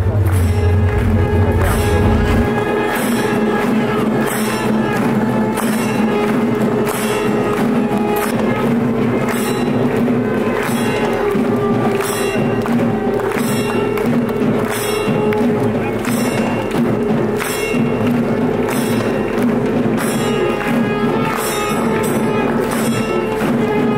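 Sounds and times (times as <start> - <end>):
steady held drone: 0.0 - 7.2
metallic percussion clashing: 0.0 - 23.9.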